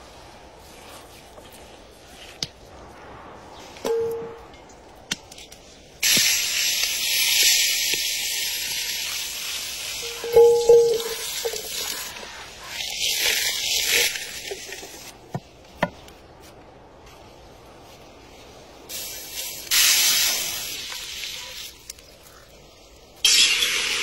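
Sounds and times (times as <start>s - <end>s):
steak sizzling in oil: 6.0s - 12.2s.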